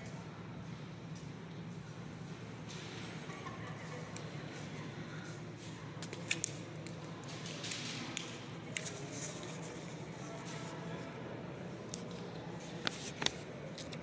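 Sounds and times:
sharp clicks and scuffs: 5.6s - 10.8s, 11.9s - 14.0s.

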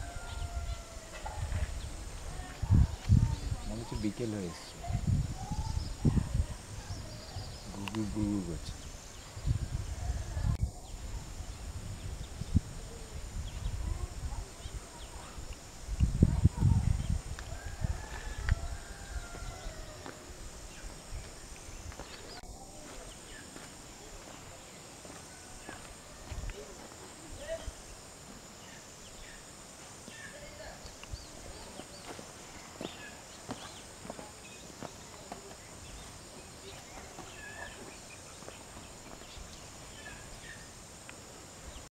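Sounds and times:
birds chirping: 0.0s - 26.8s, 27.4s - 40.8s
high insect buzz: 0.0s - 41.9s.

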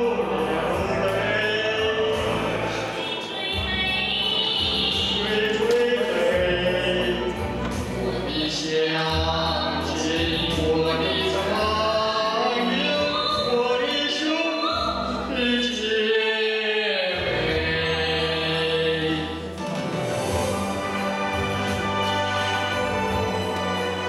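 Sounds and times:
man and woman singing duet: 0.0s - 7.6s, 8.2s - 19.6s
instrumental accompaniment: 0.0s - 15.6s, 17.2s - 24.0s.

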